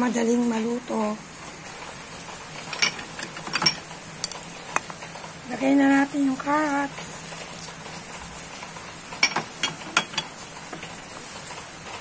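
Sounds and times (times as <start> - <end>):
utensil clinking against pot: 2.7 - 5.0, 9.2 - 10.4.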